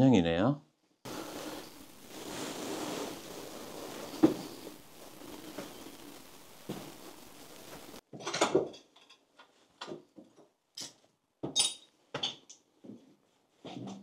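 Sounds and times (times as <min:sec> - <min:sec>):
background hiss: 0:00.0 - 0:08.0
footsteps on broken glass: 0:01.1 - 0:08.0.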